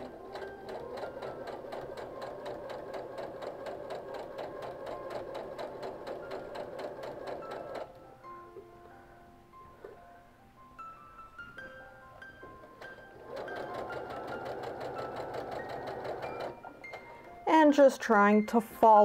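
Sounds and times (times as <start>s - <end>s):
sewing machine stitching: 0.0s - 8.0s, 12.6s - 17.3s.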